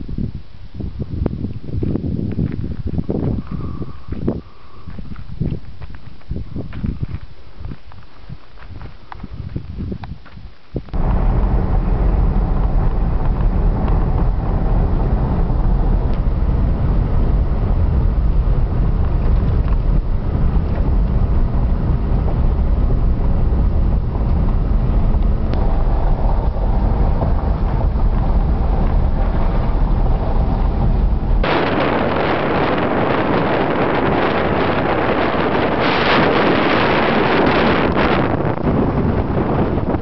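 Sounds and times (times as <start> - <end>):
wind noise on microphone: 0.0 - 40.0
tyres rumbling on gravel road: 1.8 - 40.0
car engine: 11.0 - 40.0.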